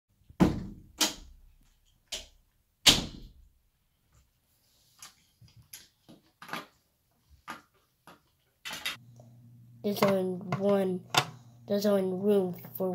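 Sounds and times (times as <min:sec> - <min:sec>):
loud knocks and thumps: 0:00.4 - 0:00.9.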